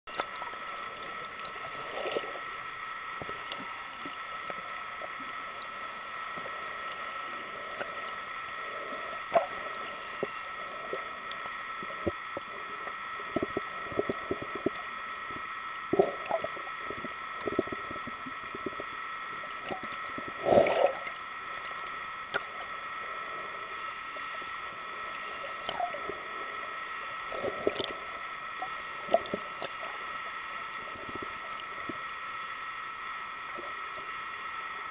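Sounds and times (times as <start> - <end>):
underwater high-pitched hum: 0.1 - 34.9
gurgling bursts: 20.3 - 21.1.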